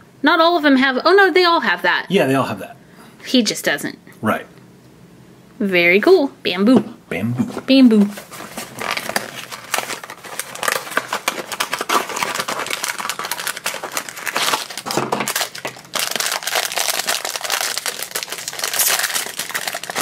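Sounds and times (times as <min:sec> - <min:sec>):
foil bag crinkling: 0:08.0 - 0:20.0
cardboard box opening: 0:08.2 - 0:15.4.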